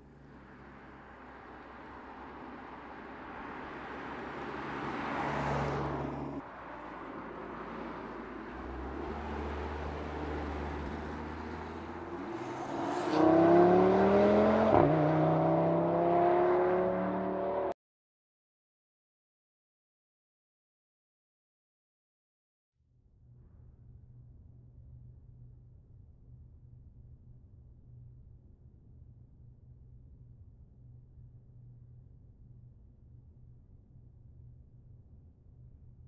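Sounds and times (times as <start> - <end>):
car engine accelerating hard: 0.1 - 17.7.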